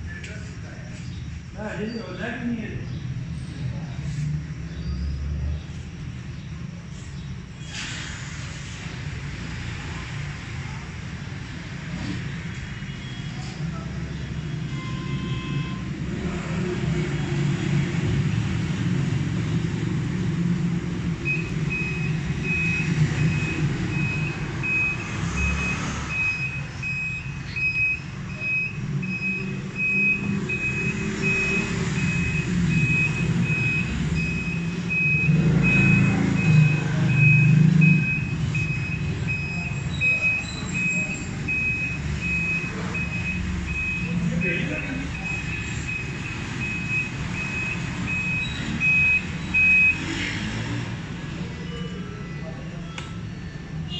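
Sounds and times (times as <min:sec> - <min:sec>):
electronic beeper beeping: 0:21.2 - 0:50.1.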